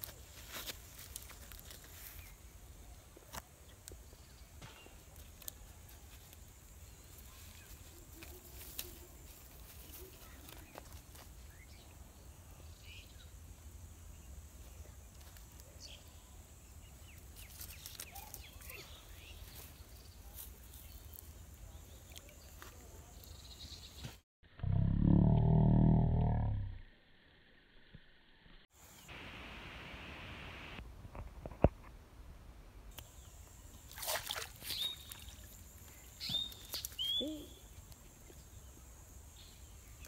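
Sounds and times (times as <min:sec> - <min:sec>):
leaves rustling and clicking: 0:00.0 - 0:11.8, 0:15.0 - 0:16.0, 0:17.1 - 0:23.4, 0:33.8 - 0:38.5.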